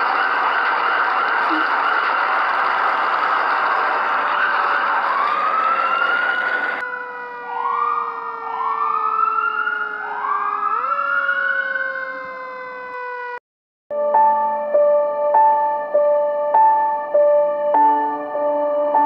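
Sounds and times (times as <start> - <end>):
emergency siren whooping: 0.0 - 13.4.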